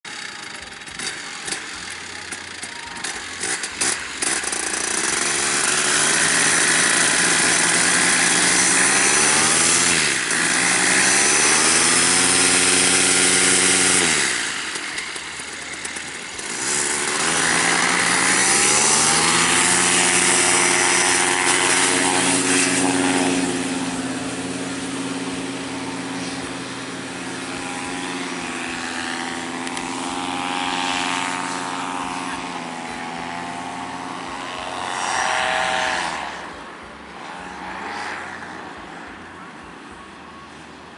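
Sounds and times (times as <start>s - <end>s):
paramotor engine and propeller revving: 0.0s - 38.8s.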